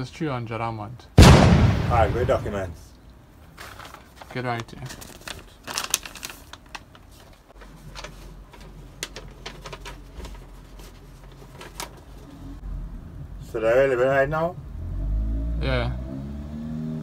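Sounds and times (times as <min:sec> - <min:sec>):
paper rustling and crackling: 0:03.5 - 0:12.4.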